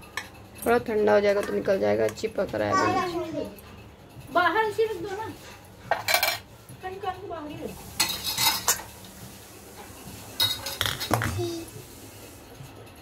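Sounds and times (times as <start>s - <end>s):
metal colander and pot clanking: 5.9s - 6.5s, 7.8s - 9.0s, 9.7s - 11.6s.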